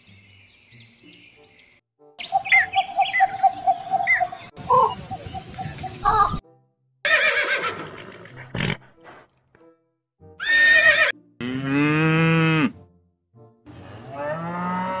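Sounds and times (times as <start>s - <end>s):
horse whinnying: 7.0s - 8.8s, 10.4s - 11.2s
cow mooing: 11.4s - 12.8s, 13.9s - 15.0s.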